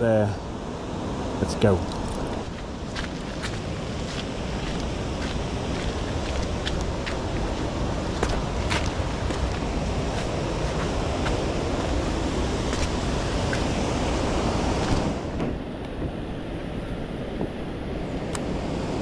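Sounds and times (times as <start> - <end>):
wind buffeting microphone: 0.0 - 19.0
river water rushing over rocks: 0.9 - 19.0
footsteps on boulders: 1.9 - 12.1, 12.7 - 13.7.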